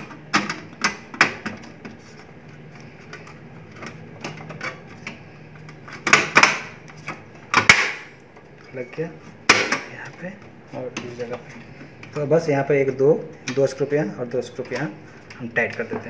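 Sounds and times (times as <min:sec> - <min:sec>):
printer parts clicking and knocking: 0:00.0 - 0:01.9, 0:06.0 - 0:08.0, 0:09.5 - 0:10.2.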